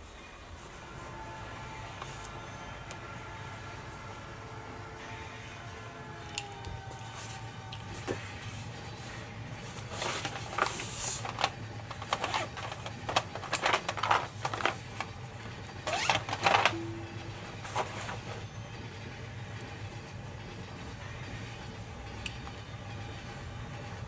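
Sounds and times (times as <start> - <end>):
steady low hum: 0.0 - 24.0
pencils rustling and clicking: 1.8 - 3.0, 6.2 - 16.8, 17.4 - 18.5.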